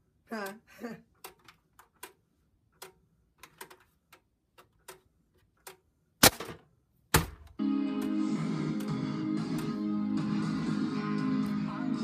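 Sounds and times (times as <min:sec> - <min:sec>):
guitar music: 0:07.6 - 0:12.0.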